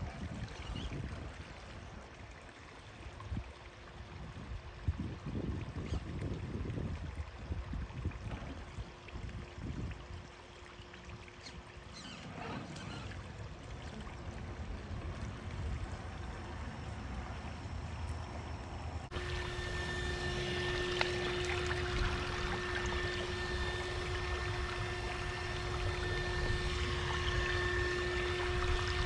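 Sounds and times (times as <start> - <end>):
water trickling over rocks: 0.0 - 29.0
toy car electric motor whine: 19.1 - 29.0.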